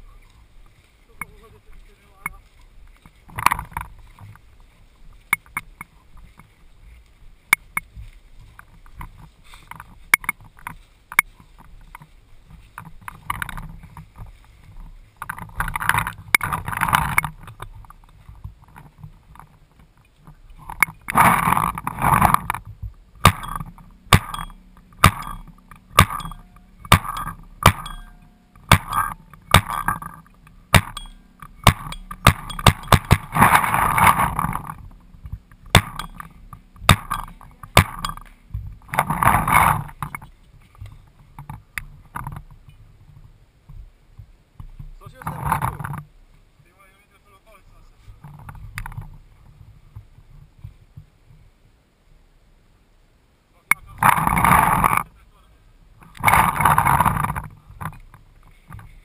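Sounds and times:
paintball markers firing: 23.2 - 34.3, 35.6 - 38.2.

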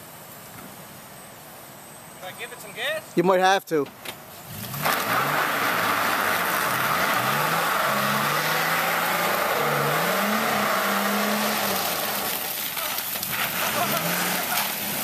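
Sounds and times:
pickup engine revving: 4.4 - 15.0
steady rushing hiss: 9.2 - 15.0.

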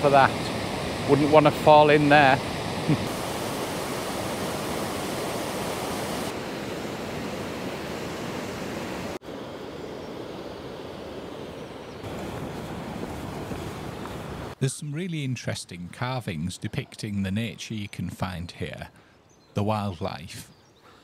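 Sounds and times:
water rushing over a weir: 0.0 - 9.2.

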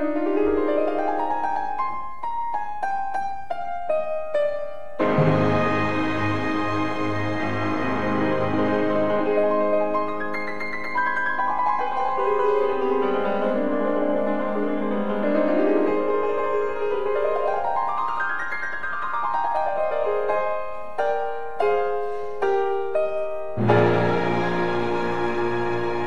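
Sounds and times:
piano music: 0.0 - 26.0.

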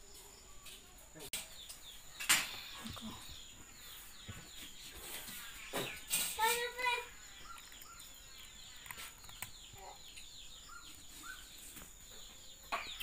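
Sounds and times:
faint birds chirping: 0.0 - 13.0.

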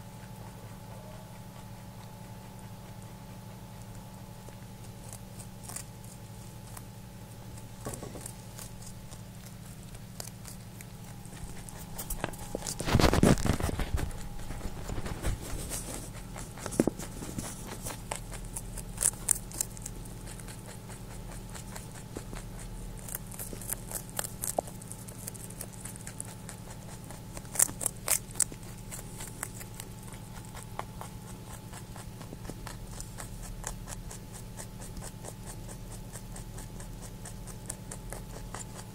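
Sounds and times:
rabbit crunching carrot: 0.0 - 38.9
steady low hum: 0.0 - 38.9
rustling bump near microphone: 11.9 - 18.0.

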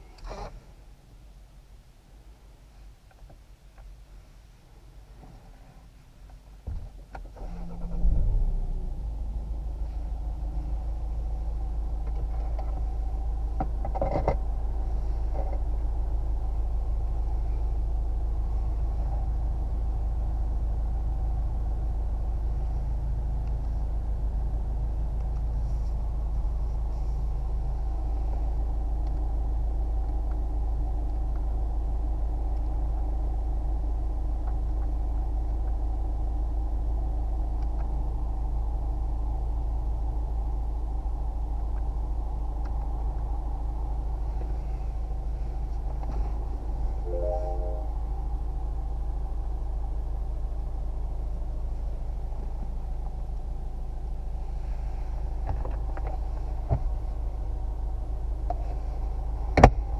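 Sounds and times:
diesel engine starting and idling: 7.2 - 13.6.

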